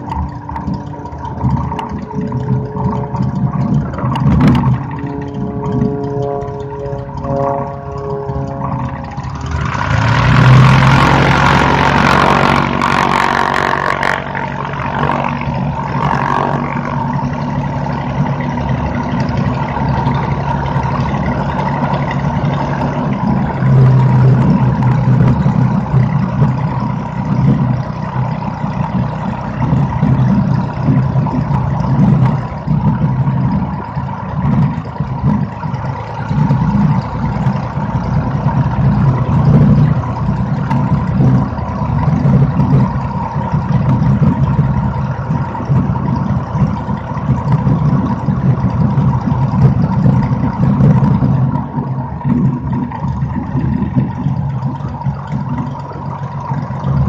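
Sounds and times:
light airplane engine and propeller: 0.0s - 57.0s.

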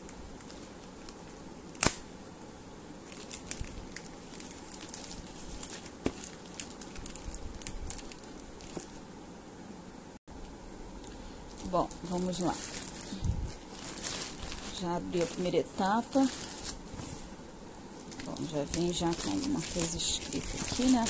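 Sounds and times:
plastic mailer tearing: 12.1s - 17.2s, 18.0s - 21.0s.

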